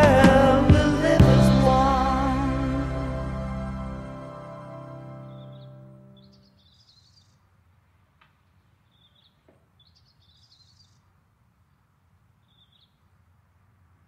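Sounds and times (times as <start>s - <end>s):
small bird chirping: 5.2s - 7.5s, 8.8s - 11.1s, 12.4s - 13.1s.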